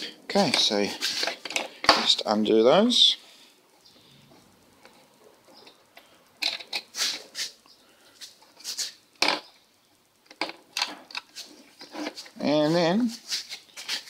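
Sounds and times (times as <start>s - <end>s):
bolts and plastic parts rattling: 0.3s - 2.2s, 5.6s - 7.2s, 8.6s - 9.6s, 10.2s - 12.4s.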